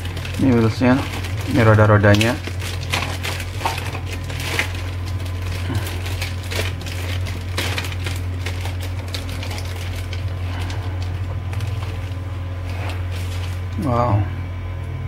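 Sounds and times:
plastic sprues clicking and rattling: 0:00.0 - 0:10.8
plastic bags crinkling: 0:00.0 - 0:13.9
steady low hum: 0:00.0 - 0:15.0.

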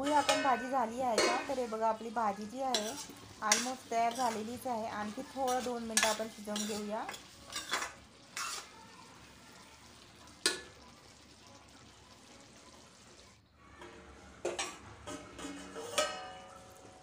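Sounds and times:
ladle clinking against pan: 0:00.0 - 0:01.6, 0:14.4 - 0:16.8
ladle scraping pan: 0:00.0 - 0:08.7, 0:13.8 - 0:17.0
low sizzle: 0:00.0 - 0:17.0
steel lid clattering: 0:14.4 - 0:16.6.

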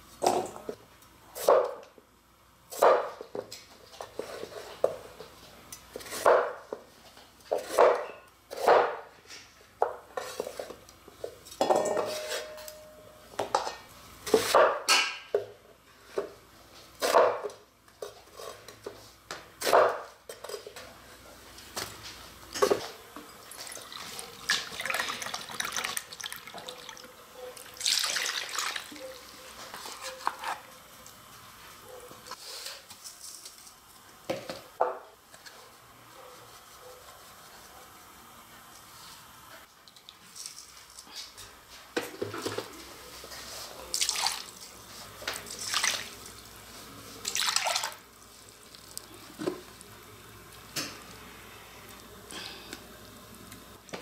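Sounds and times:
scraping and rustling in metal bowl: 0:11.5 - 0:12.9.

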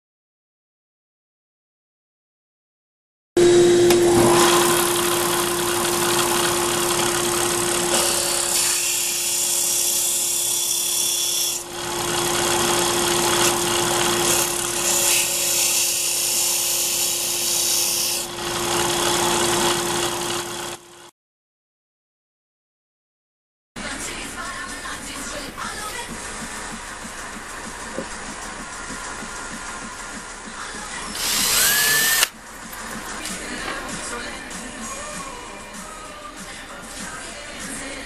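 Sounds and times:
disc sander motor hum: 0:03.4 - 0:08.7, 0:11.7 - 0:15.0, 0:18.2 - 0:20.8, 0:31.2 - 0:32.8.

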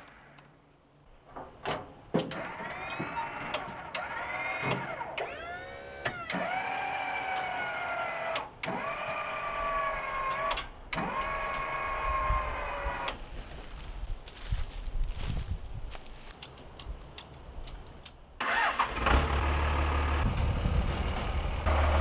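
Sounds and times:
crane electric motor whining: 0:02.3 - 0:13.2.

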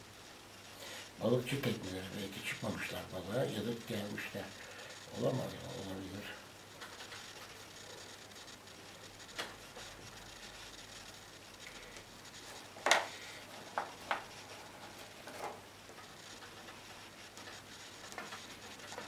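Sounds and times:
marker scratching on paper: 0:06.8 - 0:19.0
sharp clicks and knocks: 0:12.8 - 0:14.4.

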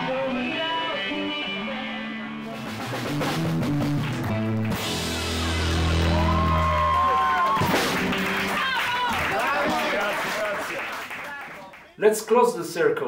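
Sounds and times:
rock band playing live: 0:00.0 - 0:09.0.

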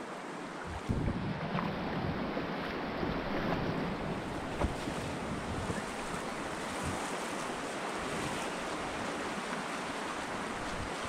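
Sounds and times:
rushing white water: 0:00.0 - 0:11.0
wind buffeting microphone: 0:00.6 - 0:02.4, 0:03.0 - 0:07.1.

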